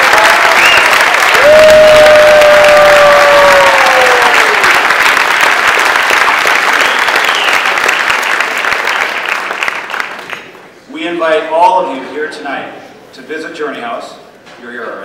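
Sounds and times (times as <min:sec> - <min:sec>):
person cheering: 0:00.0 - 0:04.8
audience applauding: 0:00.0 - 0:10.6.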